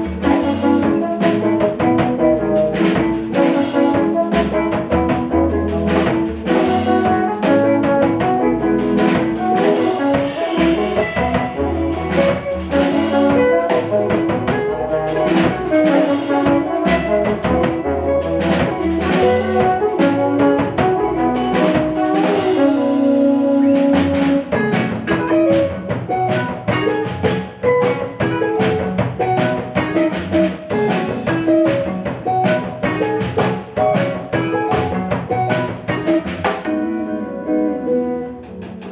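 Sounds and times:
trombone: 0.0s - 27.1s
bass guitar: 0.0s - 38.9s
drum kit with cymbals: 0.0s - 38.9s
electric guitar: 0.0s - 38.9s.

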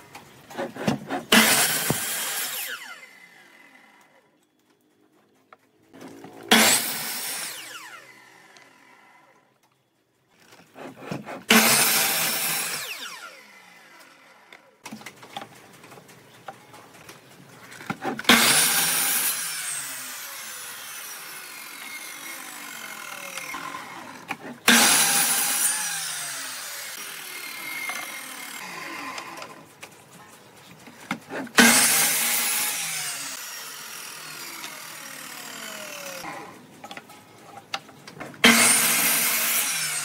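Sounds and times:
saw blade rasping through wood: 0.5s - 3.0s, 10.6s - 13.3s, 17.9s - 20.1s, 21.0s - 28.8s, 31.1s - 33.4s, 38.4s - 40.0s
saw motor whine spinning down: 6.8s - 9.4s.

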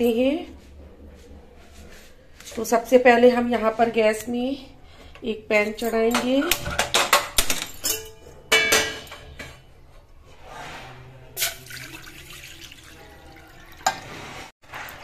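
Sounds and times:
water pouring into pan: 11.4s - 15.0s.

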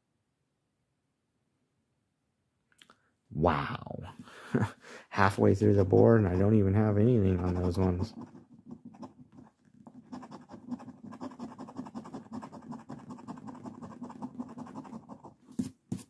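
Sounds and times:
lottery ticket being scratched: 5.6s - 15.3s.

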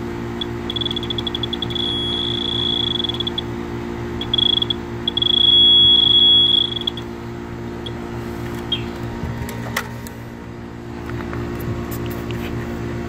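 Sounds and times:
low hum of air conditioner: 0.0s - 13.0s
leak detector rapid beeps: 0.4s - 3.6s, 4.2s - 7.1s.

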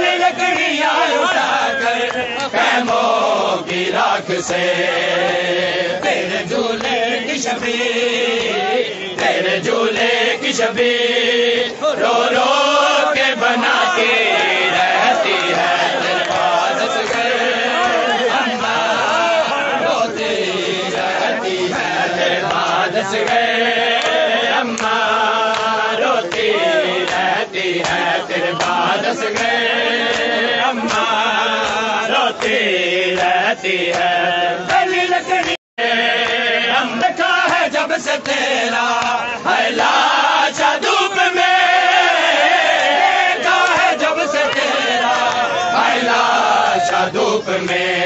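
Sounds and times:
men chanting together: 0.0s - 48.0s
hands slapping chests: 22.4s - 35.6s, 37.4s - 39.2s, 43.4s - 45.9s.

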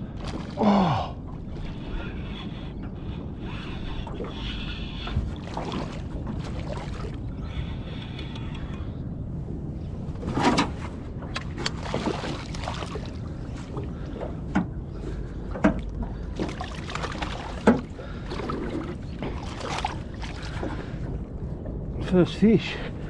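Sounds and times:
landing net sloshing in water: 0.0s - 1.9s, 5.1s - 7.2s, 10.2s - 14.0s, 15.8s - 21.0s
low rumble: 0.0s - 23.0s.

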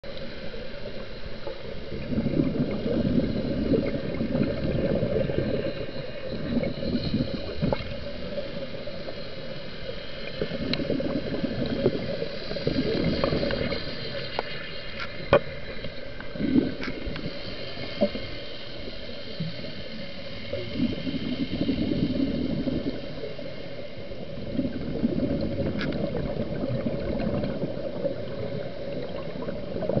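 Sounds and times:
gurgling exhaled bubbles: 1.5s - 9.0s, 10.2s - 14.6s, 16.2s - 18.3s, 20.5s - 23.4s, 24.1s - 30.0s.

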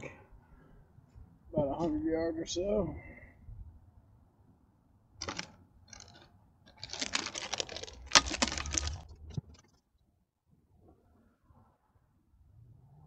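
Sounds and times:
gear rustling and clicking: 5.2s - 9.8s.

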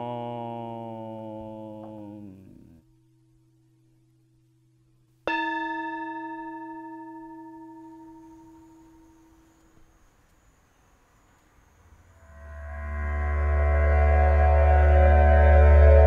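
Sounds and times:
bowl bell ringing: 5.3s - 9.4s.

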